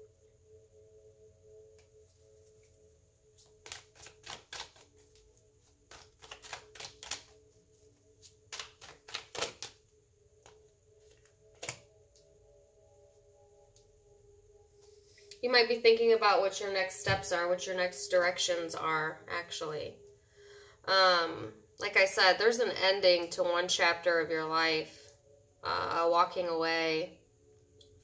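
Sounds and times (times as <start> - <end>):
faint steady hum: 0.0 - 28.0
cards being shuffled: 3.4 - 7.4, 8.2 - 9.8, 10.4 - 11.8.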